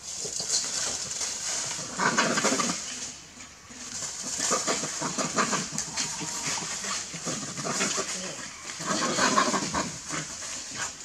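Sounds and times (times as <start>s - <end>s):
dog and monkey calls: 4.2s - 11.0s.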